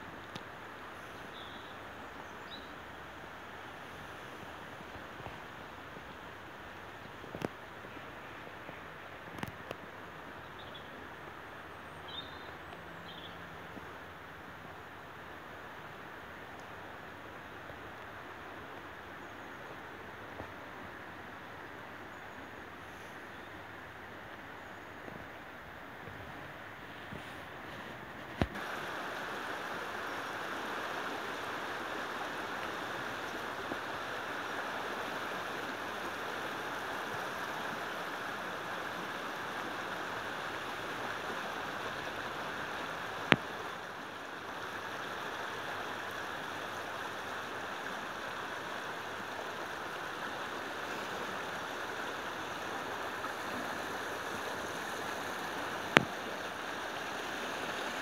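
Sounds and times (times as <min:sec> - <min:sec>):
river water rushing: 0:00.0 - 0:58.0.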